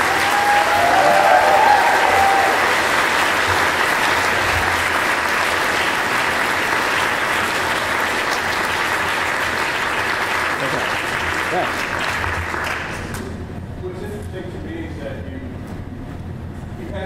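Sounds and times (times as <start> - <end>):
audience applauding: 0.0 - 13.2.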